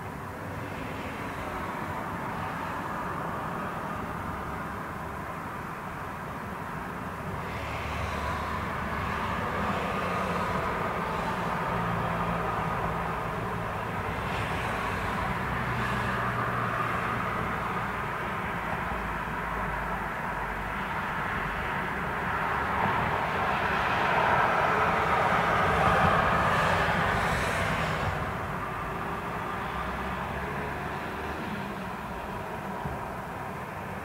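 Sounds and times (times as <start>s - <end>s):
distant traffic hum: 0.0s - 34.0s
vehicle passing: 22.8s - 31.6s.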